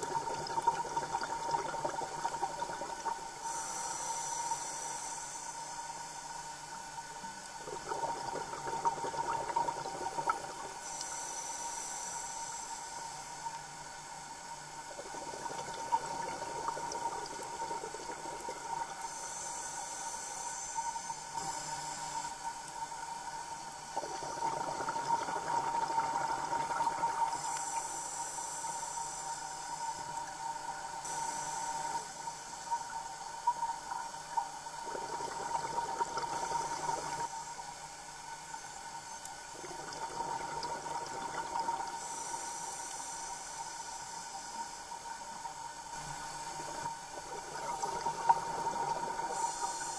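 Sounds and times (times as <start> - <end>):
diver breathing through regulator: 3.4 - 6.3.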